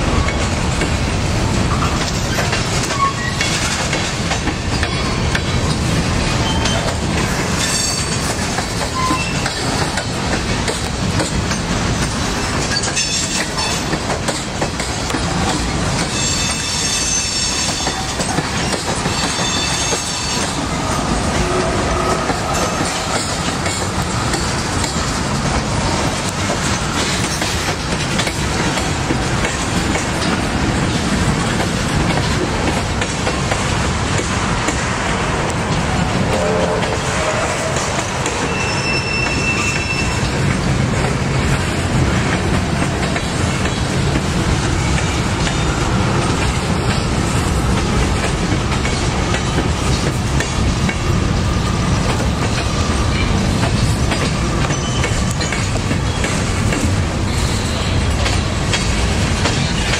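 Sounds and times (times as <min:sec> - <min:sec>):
train rumbling past: 0:00.0 - 0:59.9
wheels clacking over rail joints: 0:00.2 - 0:59.9
wheel squeals: 0:02.8 - 0:03.6, 0:08.9 - 0:10.0, 0:38.4 - 0:40.3, 0:54.6 - 0:56.2.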